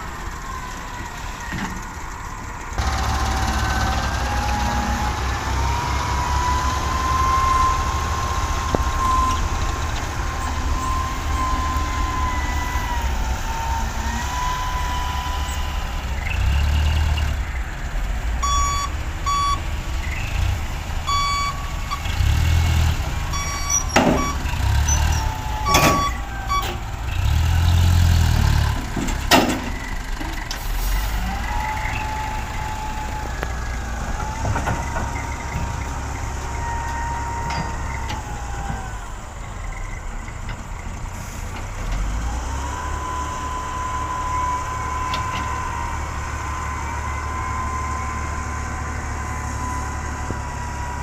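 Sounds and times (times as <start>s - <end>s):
reversing alarm beeping: 0.0s - 16.6s, 18.4s - 20.2s, 21.1s - 27.8s
diesel engines running: 0.0s - 51.0s.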